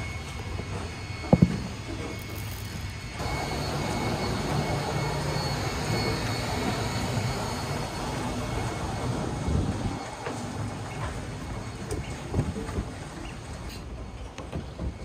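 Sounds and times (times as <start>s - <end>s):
noisy wash: 0.0s - 13.7s
engine rumble: 0.0s - 14.8s.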